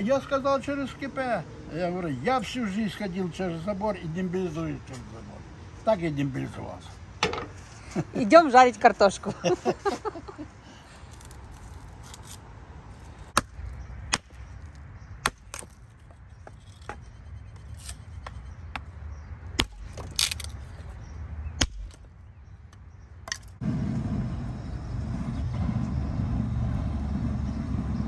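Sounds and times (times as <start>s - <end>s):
sharp knocks and cracks: 13.3s - 17.0s, 18.2s - 20.6s, 21.6s - 23.6s.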